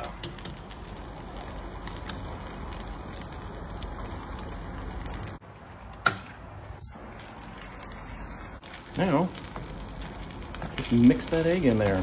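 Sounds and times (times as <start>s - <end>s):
egg sizzling in a pan: 8.6s - 12.0s.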